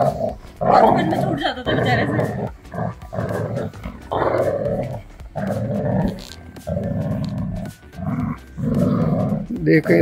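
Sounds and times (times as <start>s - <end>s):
dog growling in play: 0.0s - 9.6s.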